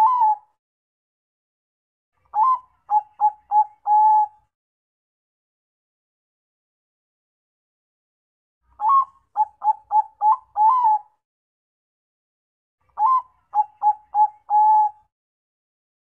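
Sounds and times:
dove cooing: 0.0s - 0.4s, 2.4s - 4.4s, 8.8s - 11.1s, 13.0s - 15.0s.

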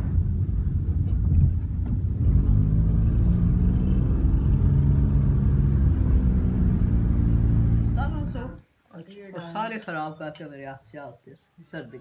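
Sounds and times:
engine and tyre drone: 0.0s - 8.6s.

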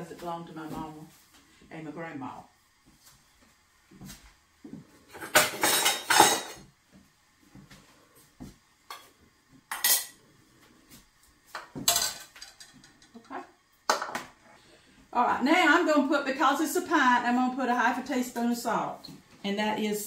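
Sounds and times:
metal utensils clanking: 5.2s - 6.6s.

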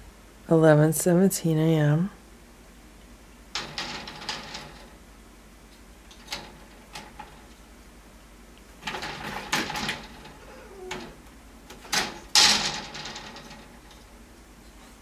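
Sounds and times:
wire pet gate rattling: 3.6s - 5.0s, 6.1s - 7.6s, 8.8s - 14.3s.

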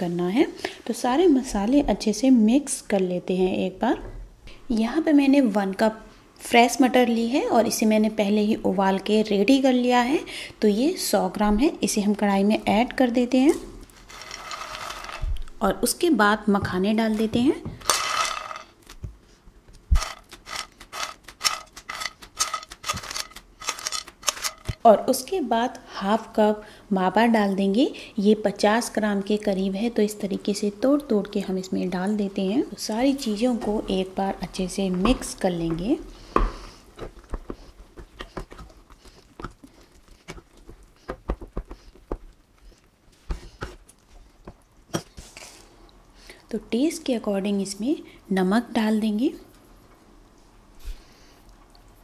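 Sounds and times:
soft rustle of seeds: 14.0s - 15.3s.

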